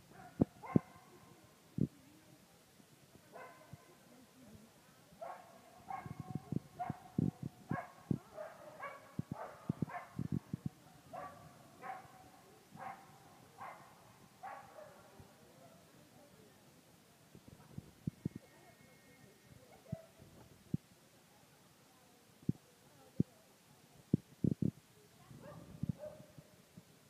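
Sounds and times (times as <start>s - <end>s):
dog barking: 0.1s - 1.1s, 3.4s - 3.7s, 5.2s - 7.1s, 7.7s - 10.2s, 11.1s - 12.2s, 12.8s - 15.0s.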